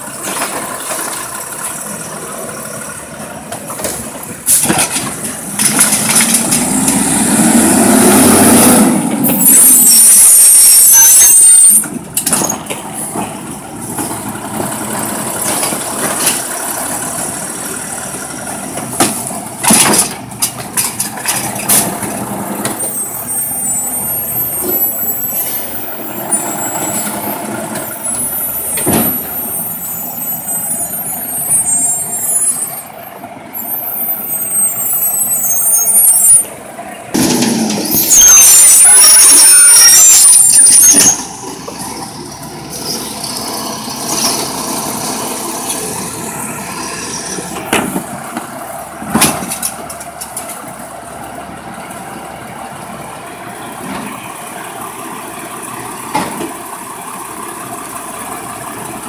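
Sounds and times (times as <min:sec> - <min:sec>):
truck engine and hydraulics: 0:00.0 - 0:59.0.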